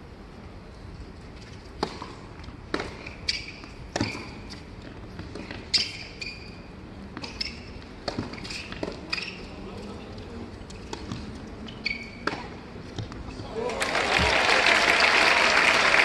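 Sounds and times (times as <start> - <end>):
shoes squeaking on court: 1.4 - 13.5
tennis ball bounces: 1.8 - 6.0, 7.1 - 9.3, 12.2 - 13.3.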